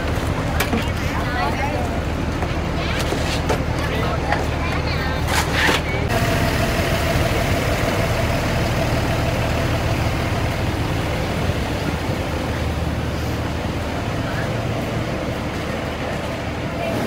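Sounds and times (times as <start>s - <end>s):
large vehicle engine idling: 5.9s - 17.0s.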